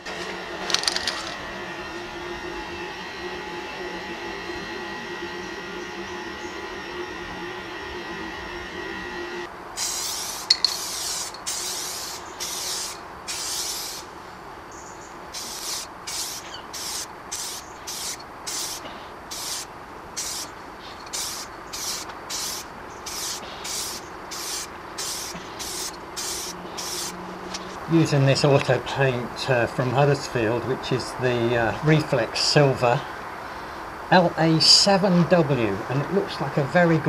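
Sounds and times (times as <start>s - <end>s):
aerosol spray can hissing: 9.8s - 14.1s, 15.3s - 27.7s.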